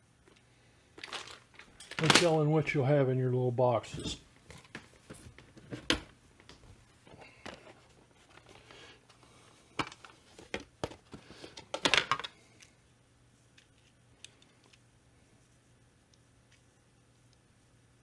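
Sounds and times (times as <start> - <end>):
parts clattering: 1.0 - 2.5, 3.9 - 12.4.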